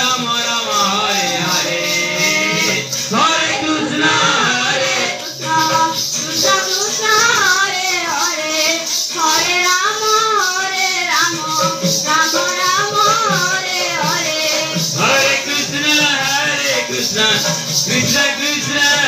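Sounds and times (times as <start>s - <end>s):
jingling percussion: 0.0s - 19.0s
women singing a chant: 0.8s - 19.0s.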